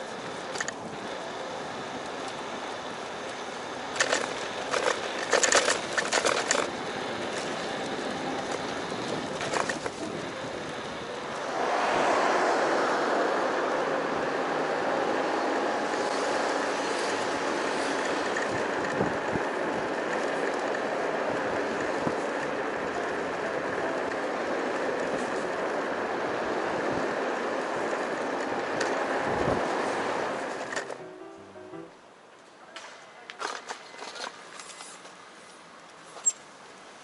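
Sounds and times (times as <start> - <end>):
scooter clicking and rattling: 0.0 - 11.0, 15.9 - 25.8, 26.4 - 31.0
road and wind noise: 0.0 - 32.6, 33.4 - 37.0.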